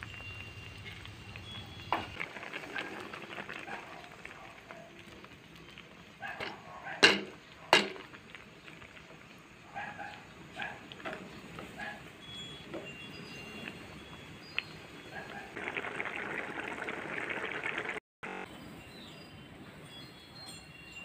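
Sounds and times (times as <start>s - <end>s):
spoon knocking against wok: 6.4s - 8.0s.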